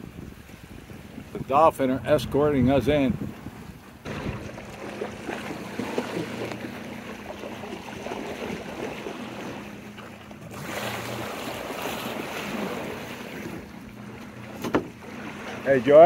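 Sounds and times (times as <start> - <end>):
wind on microphone: 0.0 - 6.6
boat engine running: 0.0 - 16.0
water rushing along hull: 0.0 - 16.0.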